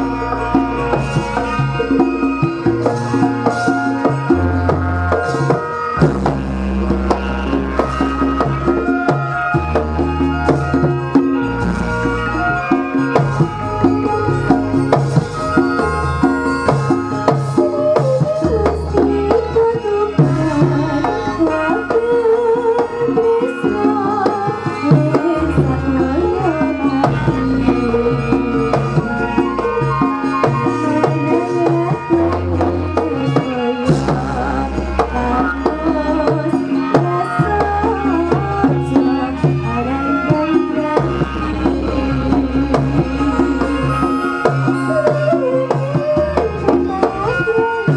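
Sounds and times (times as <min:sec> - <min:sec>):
gamelan music: 0:00.0 - 0:47.9
hand drum strokes: 0:00.0 - 0:47.9
woman singing into microphone: 0:00.0 - 0:47.9
deep low notes: 0:41.0 - 0:44.2.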